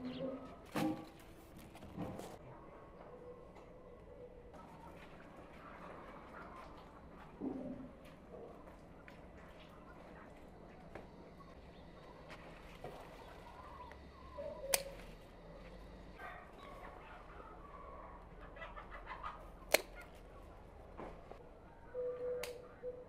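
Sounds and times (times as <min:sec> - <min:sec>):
bird calls: 0:00.0 - 0:01.1, 0:09.4 - 0:20.6, 0:21.8 - 0:23.0
chickens clucking: 0:00.0 - 0:01.2, 0:04.4 - 0:20.7
sharp clicks: 0:14.6 - 0:15.1, 0:19.7 - 0:20.2.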